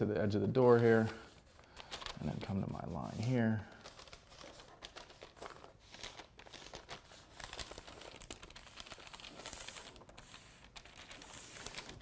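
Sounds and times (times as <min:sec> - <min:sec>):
paper rustling and crinkling: 0:00.0 - 0:12.0
sock rubbing on paper: 0:02.2 - 0:12.0.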